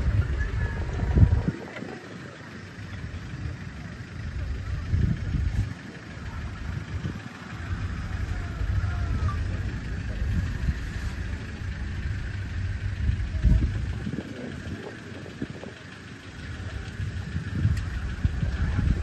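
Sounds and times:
low bumps: 0.0 - 1.9
vehicle engine idling: 0.0 - 19.0.

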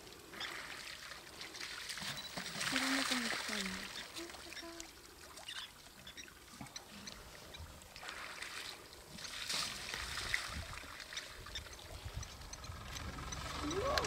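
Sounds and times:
elephant splashing in water: 0.3 - 5.5, 7.2 - 12.0.

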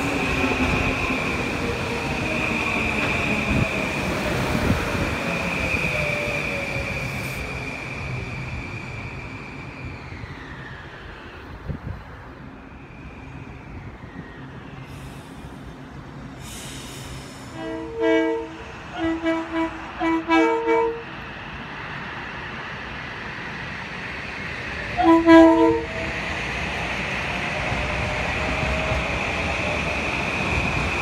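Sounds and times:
train rumble: 0.0 - 31.0
train air horn blasts: 17.5 - 21.1, 25.0 - 26.0.

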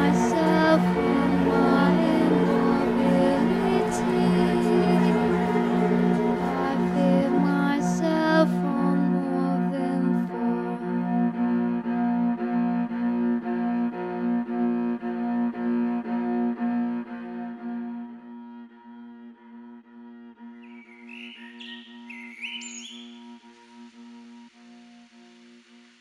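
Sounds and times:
electronic looped violin music: 0.0 - 18.8.

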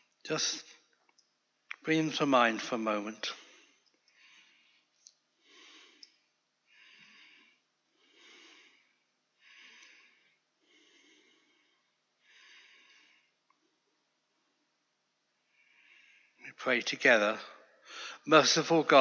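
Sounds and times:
soft breathing: 3.2 - 14.8, 15.4 - 16.6, 17.5 - 18.3.

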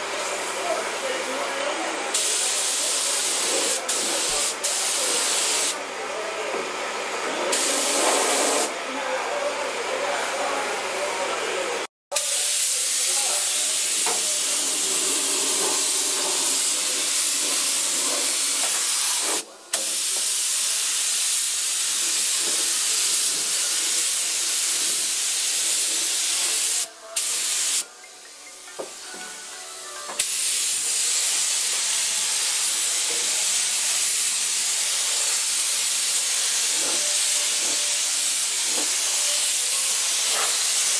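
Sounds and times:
spray gun hissing: 2.1 - 5.8, 7.5 - 8.7, 12.1 - 27.8, 30.2 - 40.9.

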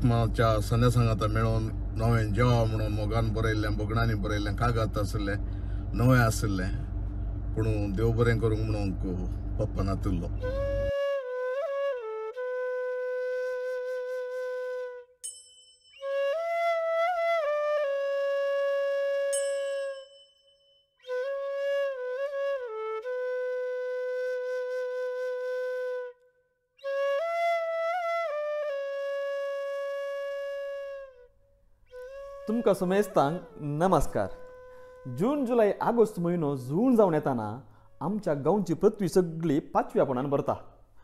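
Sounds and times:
solo flute playing: 10.3 - 15.2, 15.9 - 20.2, 21.0 - 35.9
faint high chimes: 15.2 - 16.2, 19.4 - 21.0.

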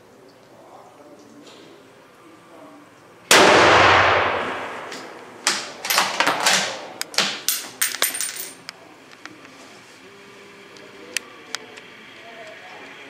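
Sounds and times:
rifle shot echoing: 3.3 - 6.9.

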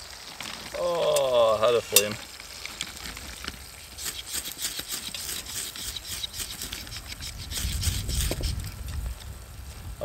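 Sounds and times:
knife scraping wood: 4.0 - 8.6.

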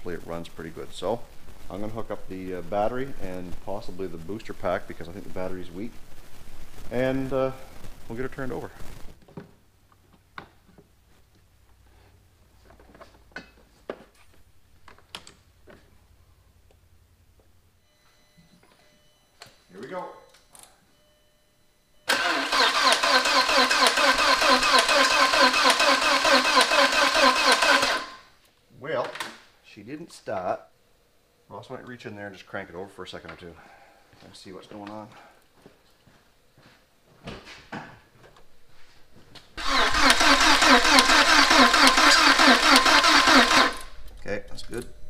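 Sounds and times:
car engine cranking on starter: 22.1 - 28.3, 39.6 - 44.0.

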